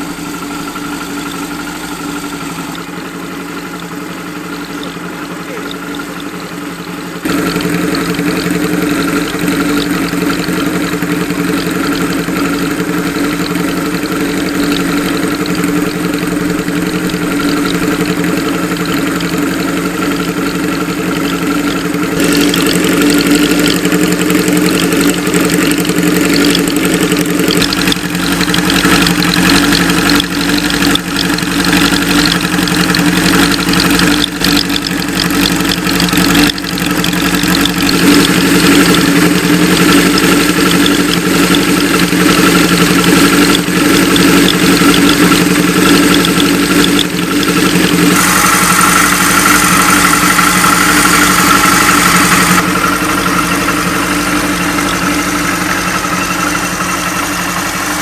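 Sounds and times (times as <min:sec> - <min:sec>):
motorcycle engine idling: 0:00.0 - 0:58.0.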